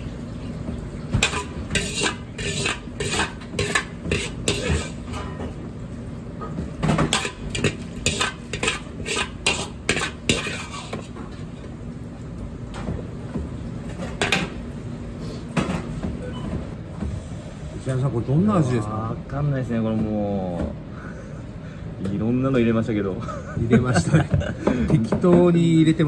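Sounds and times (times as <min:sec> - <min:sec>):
metal ladle scraping a wok: 0:01.2 - 0:05.2, 0:07.1 - 0:11.2.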